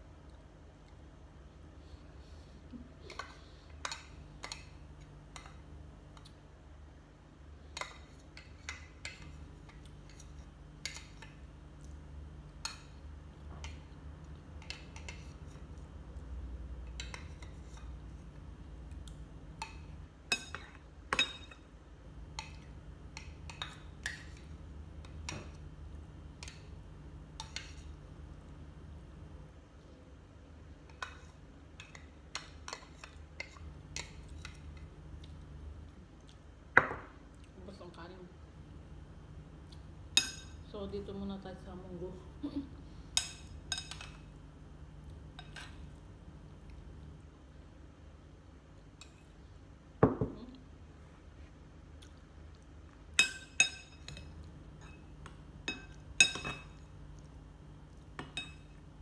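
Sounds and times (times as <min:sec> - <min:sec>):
metal spoon clinking glass bowl: 0:55.6 - 0:56.8.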